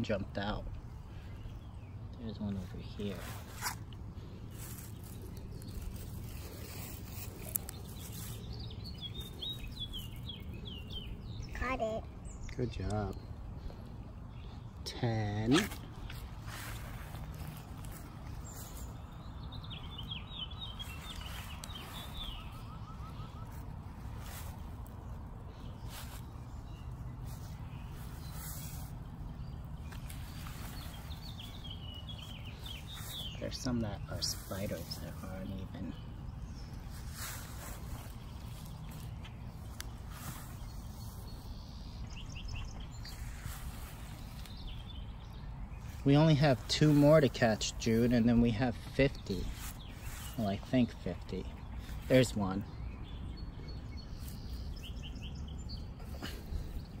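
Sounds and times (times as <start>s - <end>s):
songbird singing: 0.0s - 57.0s
flip-flop steps on grass: 3.0s - 10.5s, 15.5s - 45.0s
faint high bird chirps: 15.6s - 47.6s.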